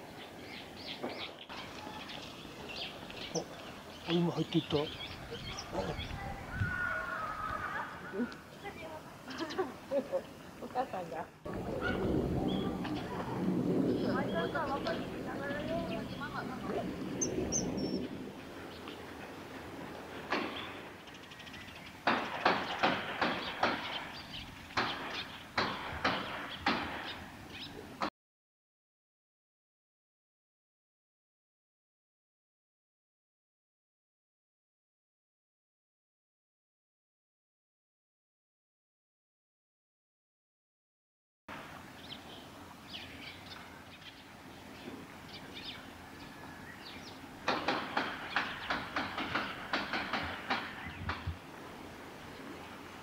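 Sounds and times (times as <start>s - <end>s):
train wheels clacking over rail joints: 22.0s - 24.0s, 47.4s - 51.2s.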